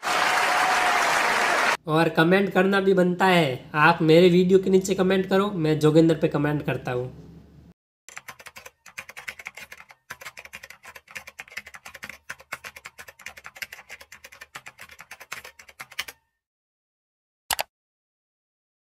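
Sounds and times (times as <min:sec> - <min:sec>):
computer keyboard typing: 0:08.1 - 0:16.2, 0:17.5 - 0:17.7.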